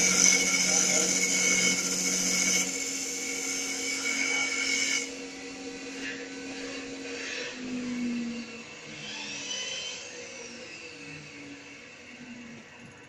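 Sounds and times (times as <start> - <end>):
lathe tool shaving wood: 0.0 - 7.8
machine hum: 0.0 - 13.0
machine whine: 0.0 - 13.0.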